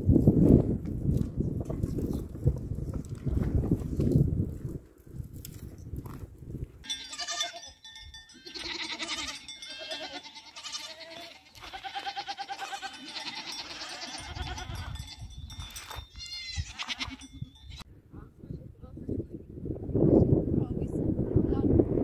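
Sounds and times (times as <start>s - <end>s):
goats bleating: 6.9s - 15.2s, 16.1s - 17.8s.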